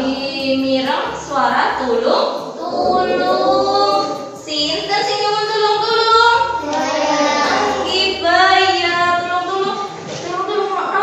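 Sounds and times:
children and woman singing: 2.6s - 4.4s, 6.6s - 8.8s.

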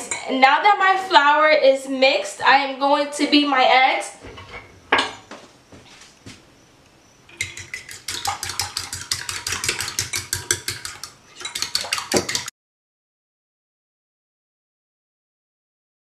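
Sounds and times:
fork clicking on ceramic dish: 7.3s - 12.5s.

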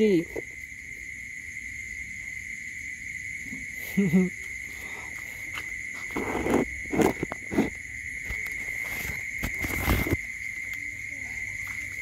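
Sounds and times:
insect chirring: 0.0s - 12.0s.

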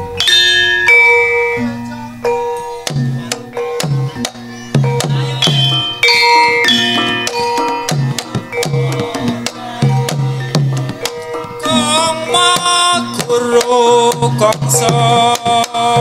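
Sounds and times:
hand drum strokes: 0.0s - 16.0s
metallophones and gongs melody: 0.0s - 16.0s.

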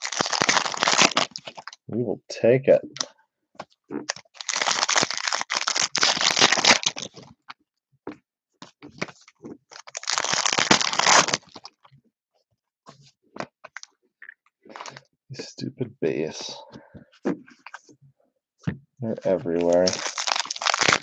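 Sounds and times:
plastic wrapper tearing and crinkling: 0.0s - 1.9s, 4.0s - 7.4s, 9.0s - 11.8s, 19.4s - 21.0s.

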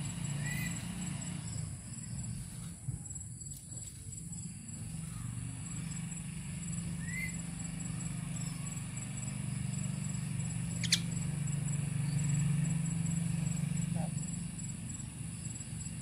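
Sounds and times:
bird chirping: 0.0s - 1.0s, 3.8s - 16.0s
steady low hum: 0.0s - 16.0s
sharp bird call: 10.8s - 11.1s.

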